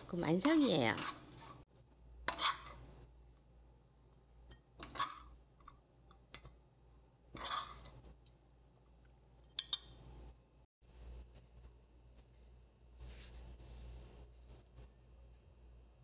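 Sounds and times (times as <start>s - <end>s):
spoon scraping sticky food in wok: 2.2s - 2.9s, 7.4s - 8.0s.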